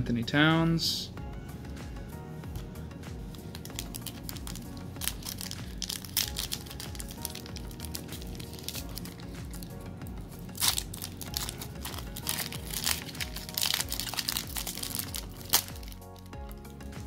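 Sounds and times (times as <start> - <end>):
background music: 0.0 - 17.0
foil pack crinkling and tearing: 3.4 - 9.7, 10.5 - 16.4.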